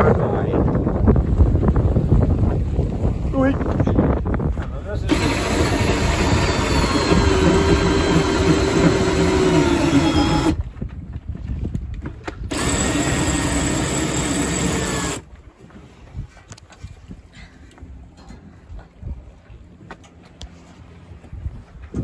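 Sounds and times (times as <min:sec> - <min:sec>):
cordless drill turning winch: 0:05.1 - 0:10.6, 0:12.5 - 0:15.2.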